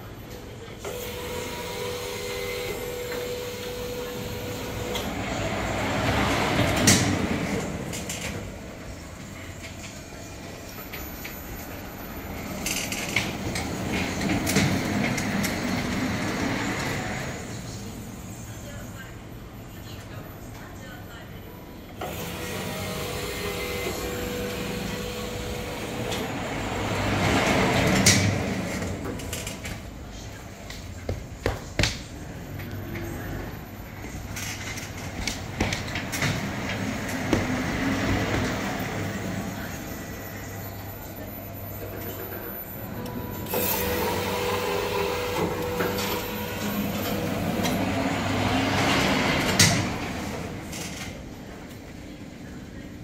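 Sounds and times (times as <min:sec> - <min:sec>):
fabric spreading machine running: 0:00.8 - 0:09.5, 0:13.2 - 0:17.7, 0:22.0 - 0:29.6, 0:35.0 - 0:40.5, 0:42.6 - 0:50.9.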